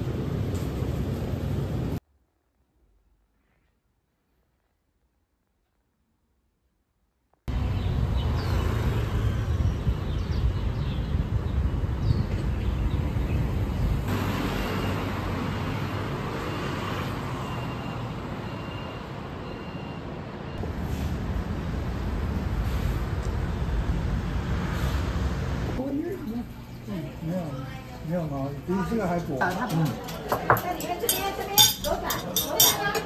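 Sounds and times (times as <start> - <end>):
rumble of passing vehicles: 0.0 - 2.0, 7.5 - 33.0
faint high beep: 17.4 - 20.6.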